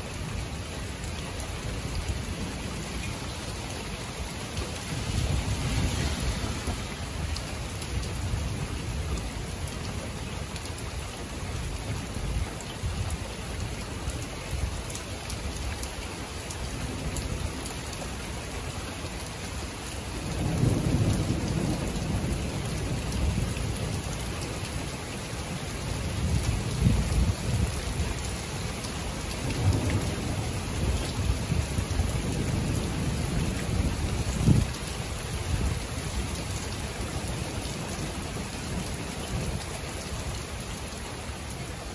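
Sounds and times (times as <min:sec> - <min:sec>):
steady rain: 0:00.0 - 0:41.9
thunder rumbling: 0:04.3 - 0:09.6, 0:20.3 - 0:23.5, 0:29.5 - 0:34.8.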